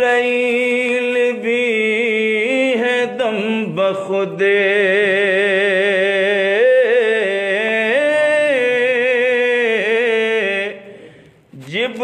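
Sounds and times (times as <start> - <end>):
man singing with vibrato: 0.0 - 12.0.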